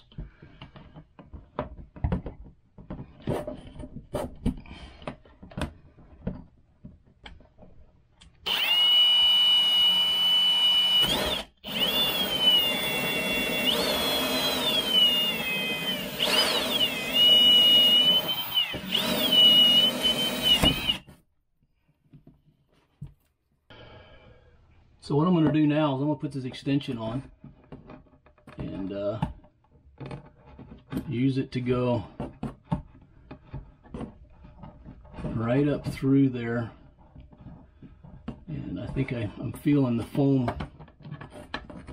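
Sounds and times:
cordless drill whining: 8.4 - 21.2.

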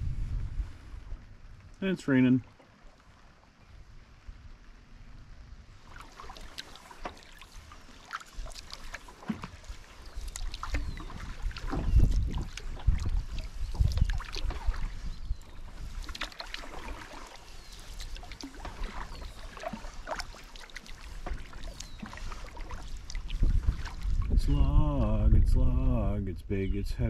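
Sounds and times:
paddle splashes and dripping water: 0.9 - 4.9, 5.6 - 24.5
low thumps on hull: 10.6 - 17.1, 21.1 - 25.9.

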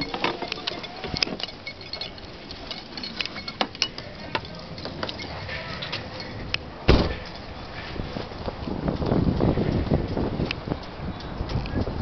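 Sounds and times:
light clicks and rustles: 0.0 - 12.0
car door shutting: 6.9 - 7.2.

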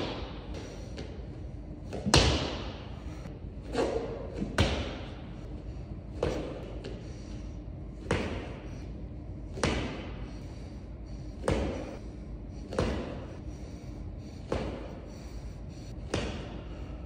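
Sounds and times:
feet thudding on gym floor: 8.0 - 8.8, 9.5 - 10.3, 11.4 - 12.0, 12.6 - 13.4, 14.4 - 15.3, 16.0 - 17.0.

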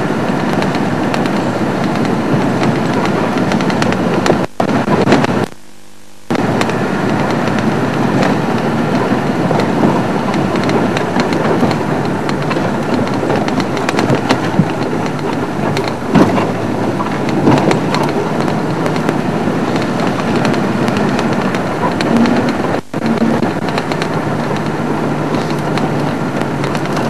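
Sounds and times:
vehicle engine and road noise: 0.0 - 27.0
knocks and rattles: 6.3 - 27.0.

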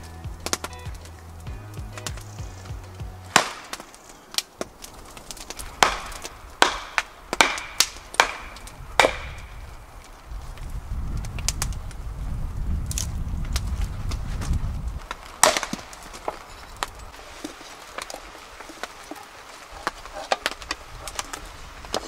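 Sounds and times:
low rumbling noise: 0.0 - 7.4, 8.0 - 15.1
axe splitting firewood: 0.0 - 10.2, 14.0 - 22.0.

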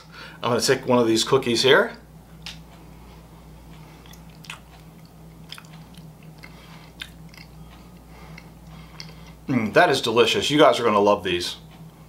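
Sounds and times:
low steady hum: 0.0 - 12.0
person chewing cookie: 3.8 - 9.5.

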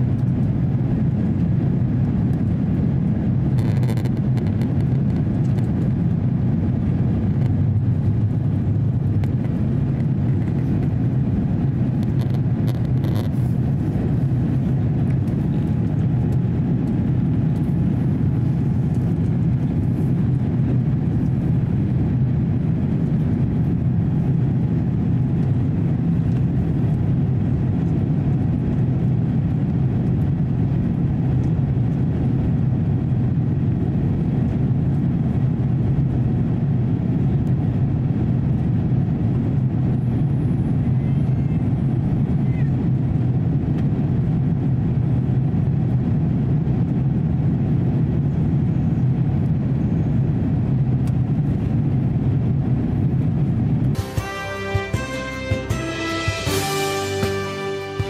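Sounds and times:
jet engine roar in cabin: 0.0 - 58.0
rushing air: 2.1 - 24.6.

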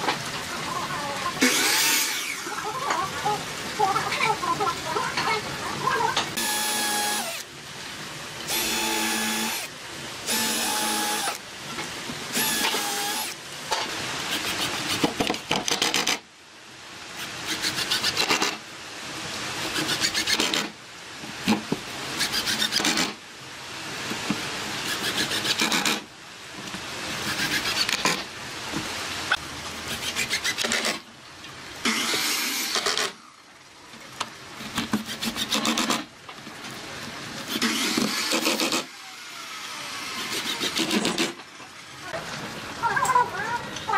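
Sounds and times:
cordless drill whirring: 6.4 - 7.4, 8.5 - 9.7, 10.3 - 11.4, 12.3 - 13.4, 31.8 - 33.2, 37.5 - 41.3.

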